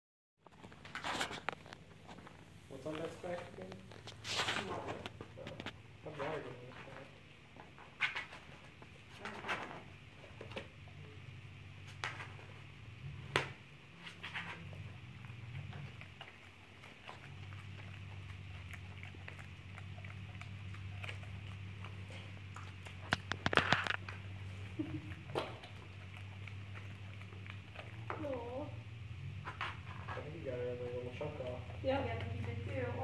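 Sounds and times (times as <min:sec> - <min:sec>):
dog mouth noises: 0:00.4 - 0:11.2, 0:11.8 - 0:32.8
paper crinkling: 0:00.5 - 0:05.8, 0:18.9 - 0:24.5
steady low hum: 0:00.5 - 0:33.0.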